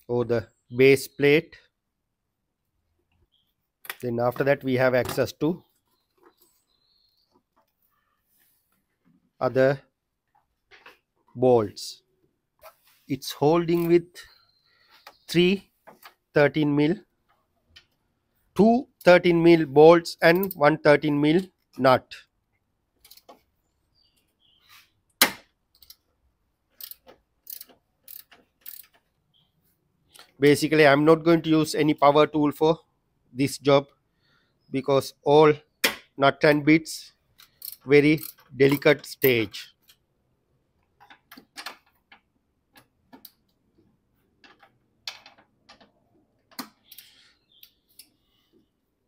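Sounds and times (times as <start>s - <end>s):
hand tools clicking and knocking: 26.7s - 29.1s, 37.4s - 40.0s.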